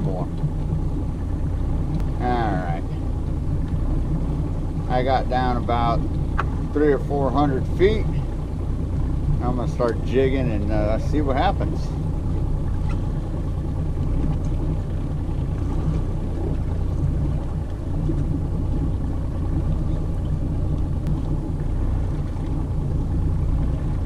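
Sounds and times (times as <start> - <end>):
boat engine idling: 0.0 - 24.0.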